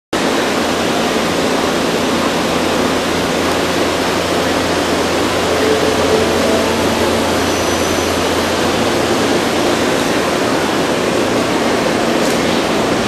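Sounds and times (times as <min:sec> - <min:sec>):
electric train approaching: 0:01.2 - 0:13.0
faint short tone: 0:04.8 - 0:09.2.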